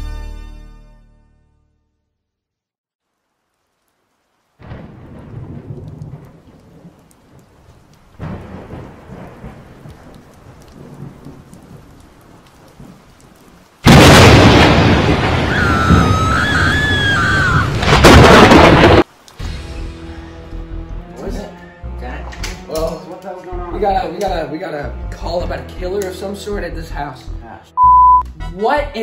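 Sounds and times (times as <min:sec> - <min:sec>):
rain: 0:03.0 - 0:27.0
loud thunder crash: 0:04.6 - 0:06.9, 0:13.8 - 0:19.1
rolling thunder: 0:04.6 - 0:19.1.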